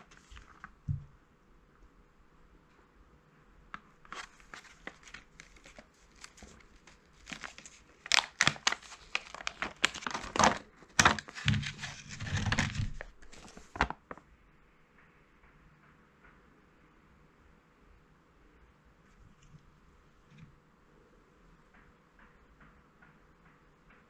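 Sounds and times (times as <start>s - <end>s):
plastic blister pack crinkling: 0.0s - 0.8s, 4.0s - 14.2s.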